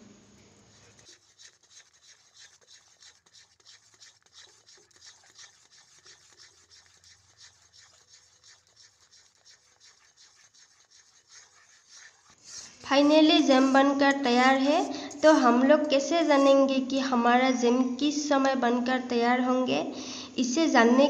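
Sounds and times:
metal spatula scraping a pan: 0:00.7 - 0:16.9.

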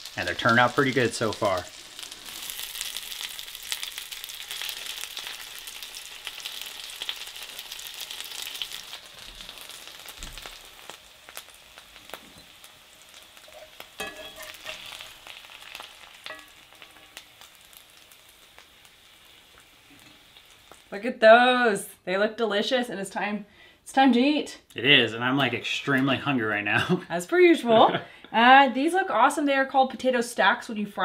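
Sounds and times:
potatoes sizzling in a pan: 0:00.0 - 0:21.8
spatula and fork clinking: 0:13.5 - 0:15.1, 0:15.7 - 0:17.2.

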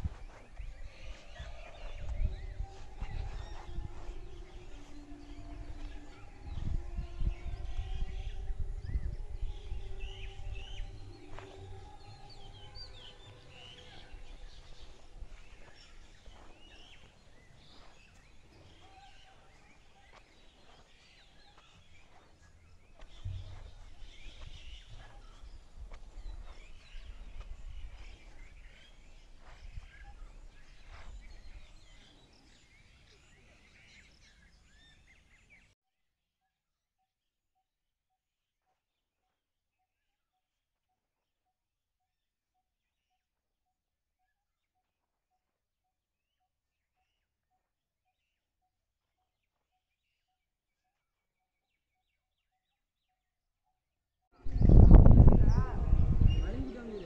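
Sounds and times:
small birds chirping: 0:00.0 - 0:35.8, 0:54.4 - 0:57.0.

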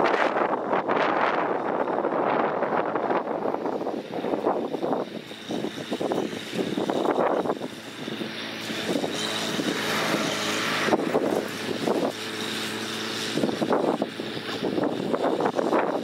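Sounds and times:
blade pushing dirt: 0:00.0 - 0:16.0
bulldozer diesel engine running: 0:04.2 - 0:16.0.

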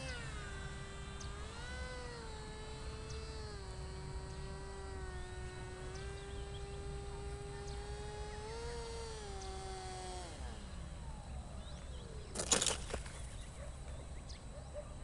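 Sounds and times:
electric motor whining: 0:00.0 - 0:13.5
model scraping on dirt: 0:12.4 - 0:13.4.

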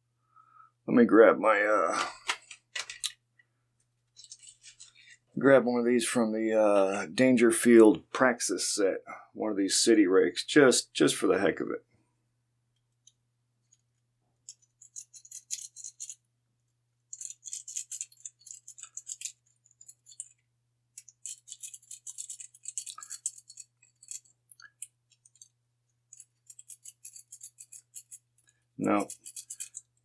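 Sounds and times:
lock pick scratching in padlock: 0:14.5 - 0:16.2, 0:17.1 - 0:25.5, 0:26.1 - 0:30.0.

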